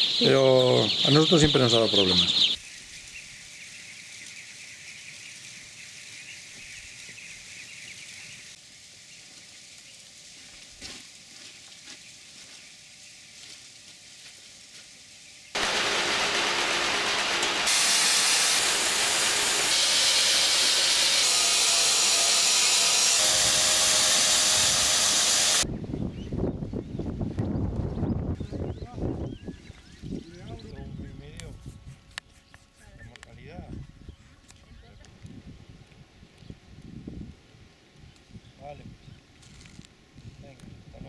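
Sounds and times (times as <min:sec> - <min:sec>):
grain pouring into hopper: 0:15.6 - 0:22.0.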